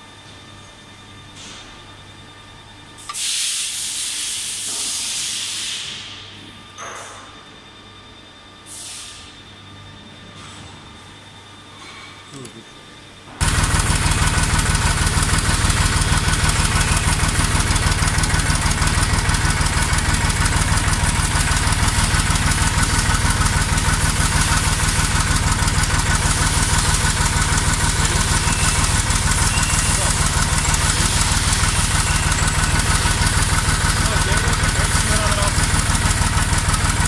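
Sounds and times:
tractor engine running: 0:13.4 - 0:37.0.

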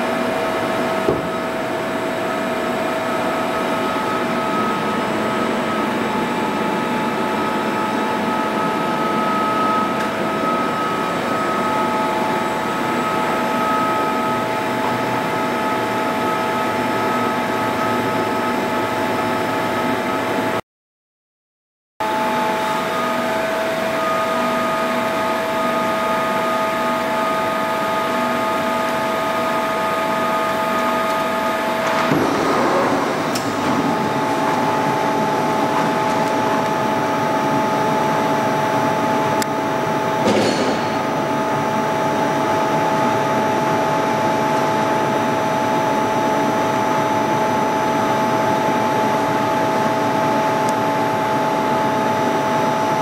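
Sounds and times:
milling machine hum and whine: 0:00.0 - 0:20.6, 0:22.0 - 0:53.0
machine clunk: 0:31.7 - 0:34.8, 0:40.2 - 0:41.3.

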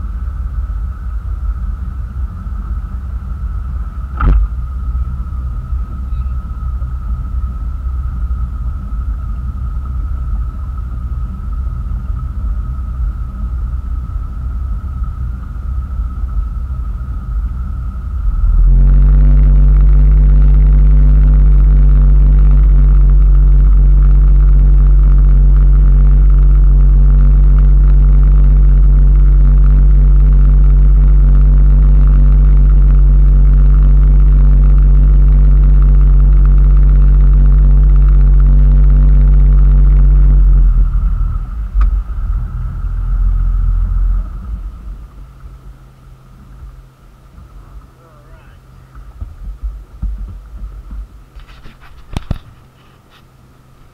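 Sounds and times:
motorboat engine running: 0:00.0 - 0:53.9.

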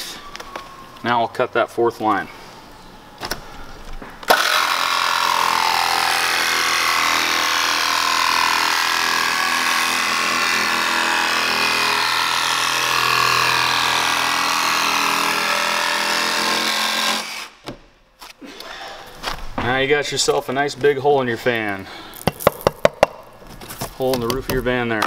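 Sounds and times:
jigsaw cutting sheet metal: 0:04.3 - 0:17.6.

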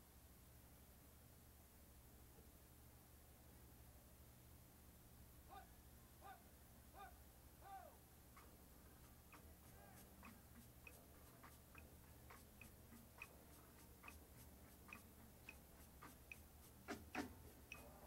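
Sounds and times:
sharp percussion clicks: 0:08.4 - 0:18.0.

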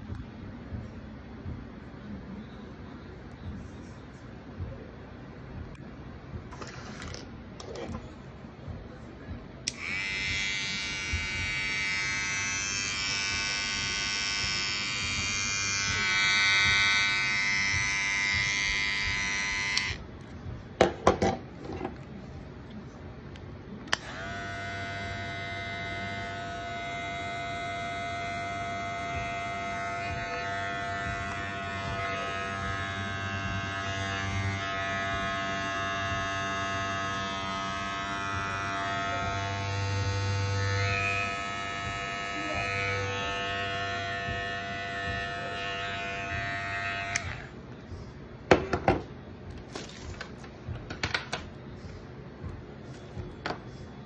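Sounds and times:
hair clipper buzzing: 0:09.7 - 0:20.0, 0:23.9 - 0:47.5.

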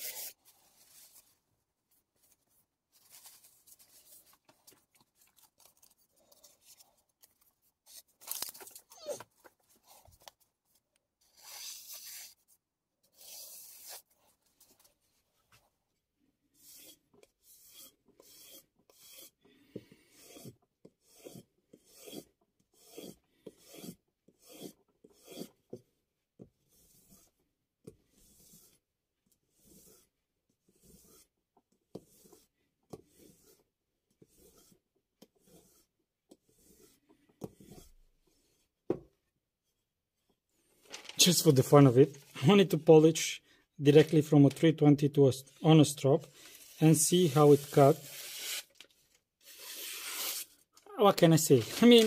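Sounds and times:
faint brushing and rustling: 0:00.0 - 0:07.1.

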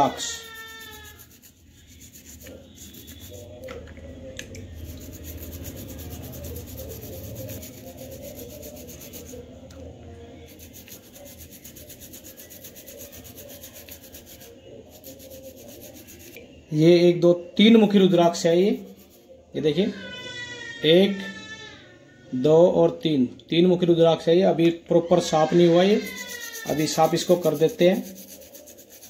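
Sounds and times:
wet fingers rubbing seed: 0:00.0 - 0:03.8, 0:04.6 - 0:09.8, 0:10.4 - 0:16.4, 0:17.9 - 0:19.3, 0:25.6 - 0:29.0.

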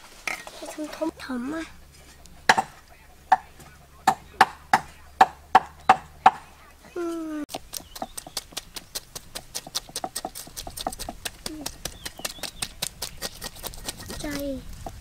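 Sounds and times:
knife chopping on wooden board: 0:02.5 - 0:06.5, 0:07.5 - 0:14.4
knife scraping fish: 0:07.7 - 0:14.4.

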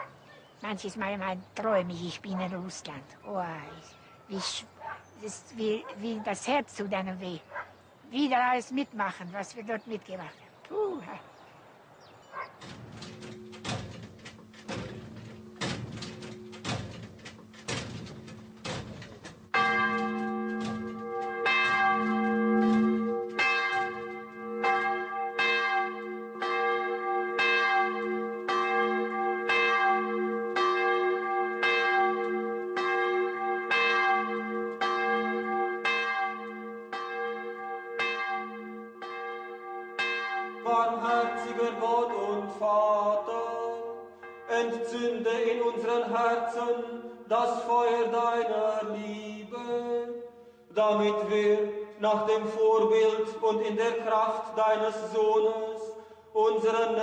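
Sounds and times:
church bell ringing: 0:13.0 - 0:17.4, 0:19.5 - 0:48.0.

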